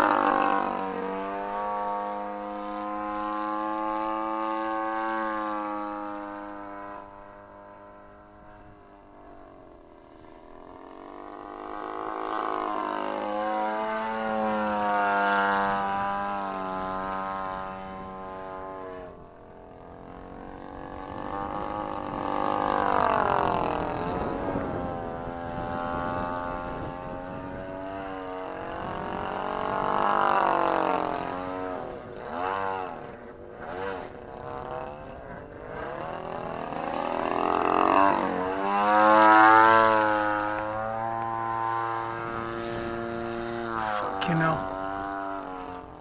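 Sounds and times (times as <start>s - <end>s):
model plane engine and propeller: 0.0s - 46.0s.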